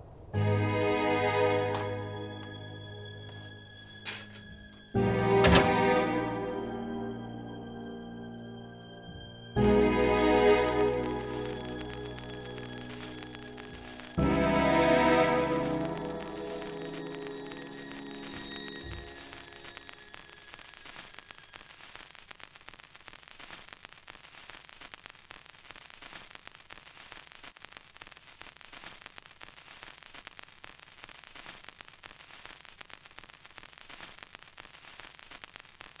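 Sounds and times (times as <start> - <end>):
film crackle and hiss: 0.0 - 8.6, 9.4 - 36.0
music notes ringing: 0.1 - 20.9.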